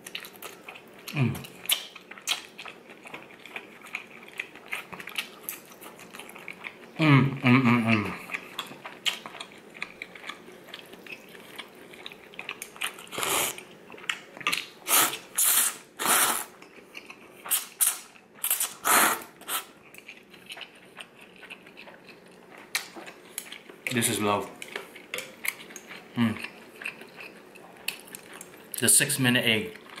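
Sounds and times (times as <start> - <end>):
chewing: 0.0 - 7.0, 7.7 - 15.2, 16.4 - 28.8, 29.7 - 30.0
person slurping noodles: 13.1 - 13.6, 14.9 - 16.6, 17.5 - 19.7
person blowing on noodles: 13.2 - 13.6, 14.8 - 16.6, 17.5 - 19.7.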